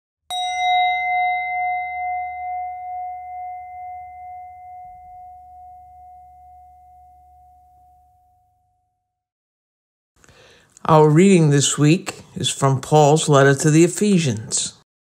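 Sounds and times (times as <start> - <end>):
bell-like chime ringing: 0.3 - 8.7.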